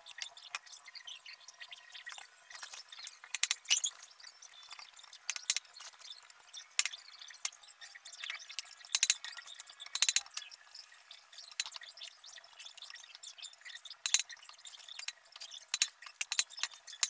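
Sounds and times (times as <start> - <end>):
hard objects clinking together: 2.6 - 4.0.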